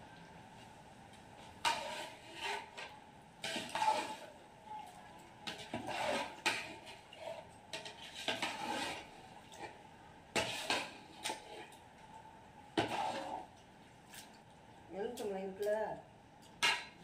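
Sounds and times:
ladle scraping a metal pot: 1.6 - 4.4, 5.5 - 9.7, 10.4 - 11.8, 12.8 - 13.5.

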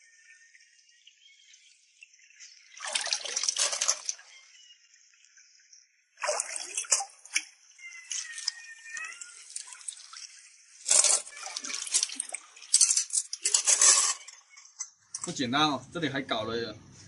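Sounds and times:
water dripping and pouring: 0.0 - 15.4
hand splashing in water: 6.2 - 7.4.

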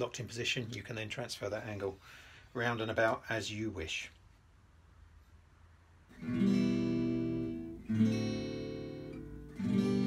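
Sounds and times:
acoustic guitar strummed chords: 6.1 - 10.0.

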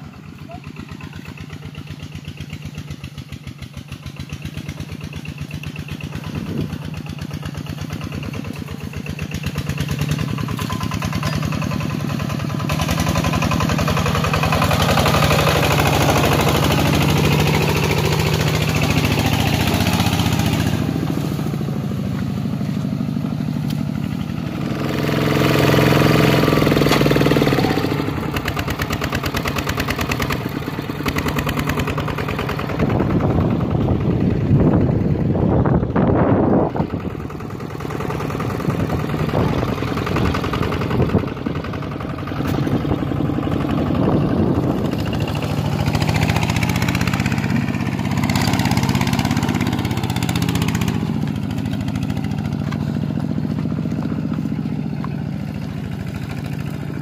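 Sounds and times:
diesel engine chugging: 0.0 - 57.0.

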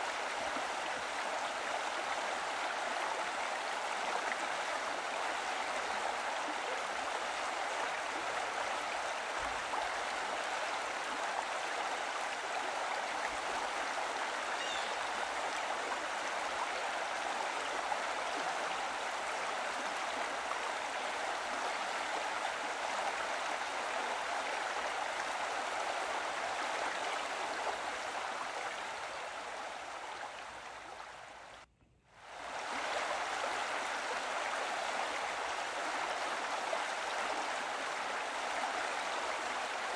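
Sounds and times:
running water: 0.0 - 39.9.

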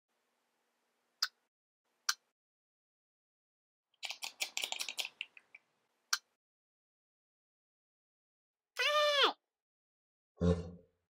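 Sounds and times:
cartoon clicks and taps: 2.0 - 2.3, 4.0 - 6.4.

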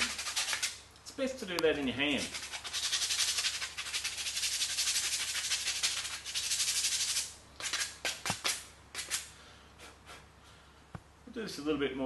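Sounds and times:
sandpaper rubbing wood: 0.0 - 0.8, 2.1 - 9.3.

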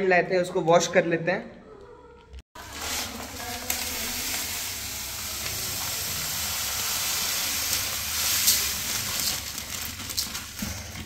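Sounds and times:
sand pouring into container: 2.6 - 10.6.

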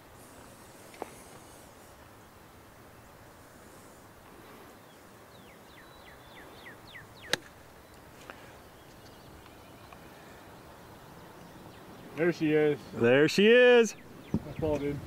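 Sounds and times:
bird chirping: 4.8 - 15.0
golf club striking ball: 7.2 - 7.6.

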